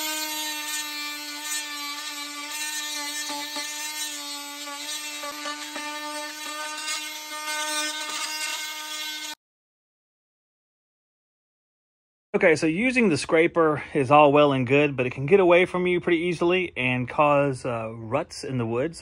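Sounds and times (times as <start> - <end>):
oscillating multi-tool buzzing: 0.0 - 9.4
scraper blade scratching wood: 0.0 - 9.4.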